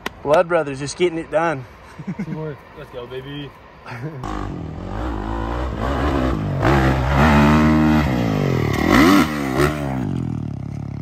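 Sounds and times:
dirt bike engine revving: 4.2 - 11.0.

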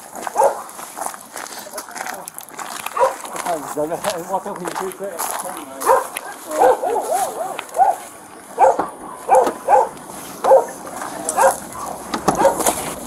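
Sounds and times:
dogs barking: 0.2 - 0.7, 2.9 - 3.5, 5.8 - 13.0.

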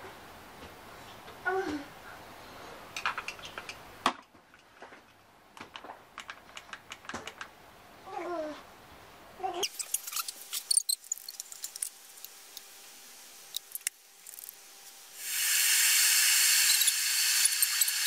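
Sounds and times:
kettle hiss of water heating: 10.4 - 18.0.

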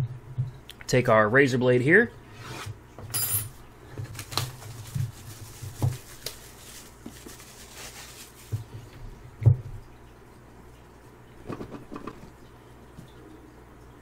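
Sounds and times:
plastic wrap crinkling: 4.0 - 8.8.

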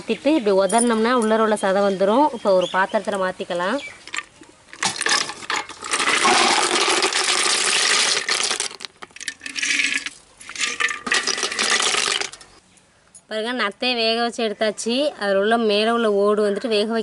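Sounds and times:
water splashing: 4.7 - 12.4.

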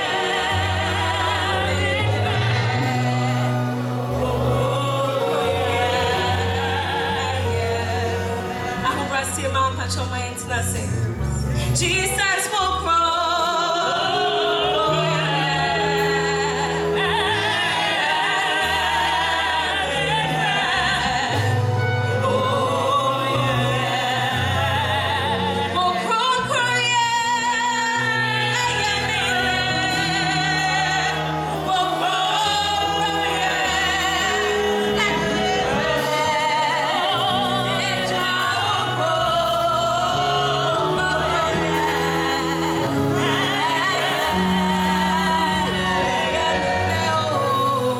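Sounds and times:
voices singing with vibrato: 0.0 - 9.8, 11.6 - 47.9
band playing: 0.0 - 47.9.

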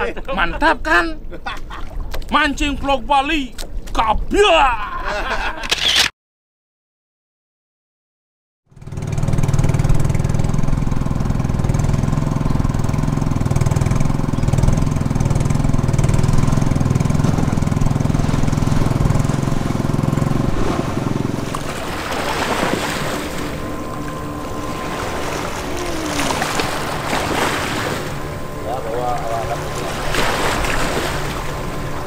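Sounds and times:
small boat engine running: 8.7 - 32.0
water splashing: 16.4 - 32.0.

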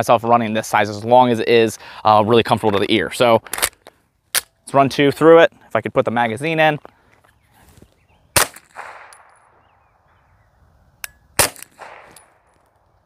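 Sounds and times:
suppressed pistol shots: 8.4 - 9.6, 11.0 - 12.6.

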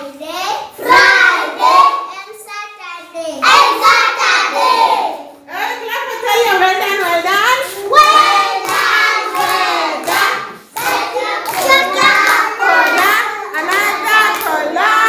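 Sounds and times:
children singing in chorus: 0.8 - 2.1, 3.4 - 5.2, 7.9 - 15.0
hands clapping: 8.0 - 14.9.

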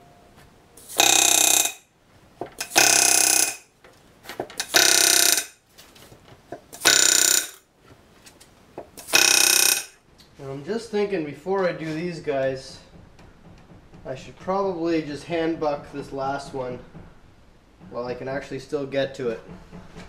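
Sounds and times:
pneumatic rivet gun hammering: 0.8 - 1.8, 2.5 - 3.7, 4.4 - 5.6, 6.5 - 7.6, 8.8 - 10.0.

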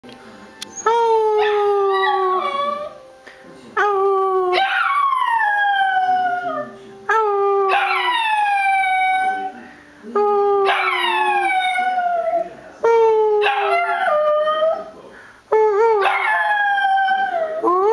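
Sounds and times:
dog howling: 1.3 - 3.0, 4.0 - 9.6, 10.6 - 12.5, 13.4 - 14.9, 16.0 - 17.9.

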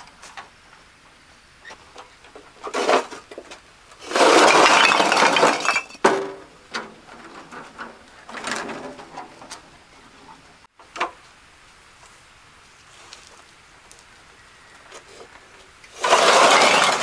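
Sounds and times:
building work scraping and clattering: 1.7 - 10.6, 14.9 - 17.0.

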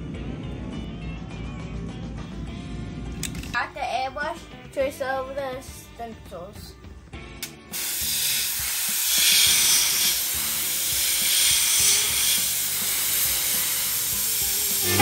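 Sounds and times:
airbrush hissing: 7.7 - 15.0.

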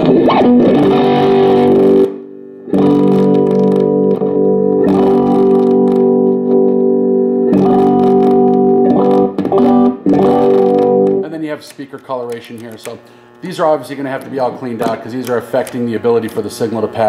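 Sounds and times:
electric guitar chords ringing: 0.0 - 17.0.

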